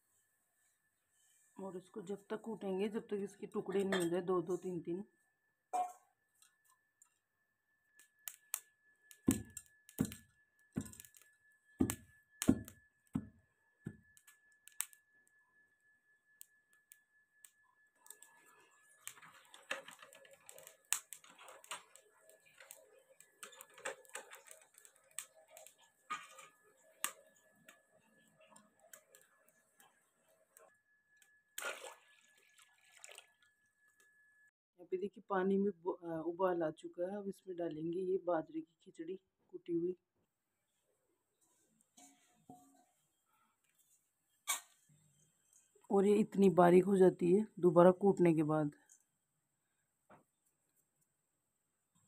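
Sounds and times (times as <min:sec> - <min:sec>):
coal fire crackling: 0:08.0 - 0:15.1, 0:16.4 - 0:30.7.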